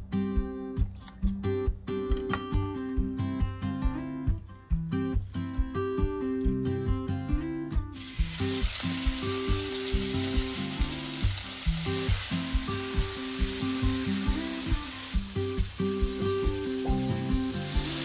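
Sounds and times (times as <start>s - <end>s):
acoustic guitar music: 0.0s - 18.0s
food sizzling in oil: 8.0s - 18.0s.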